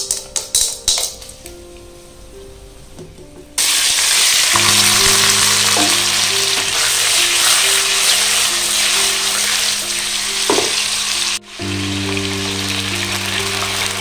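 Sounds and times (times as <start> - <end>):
pork sizzling in a wok: 3.6 - 14.0.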